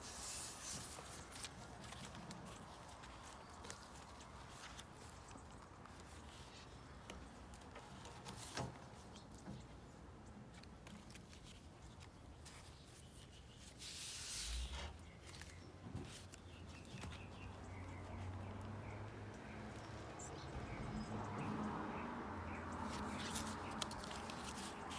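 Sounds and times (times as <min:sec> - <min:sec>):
paper pages rustling: 0:00.0 - 0:18.8, 0:22.7 - 0:24.9.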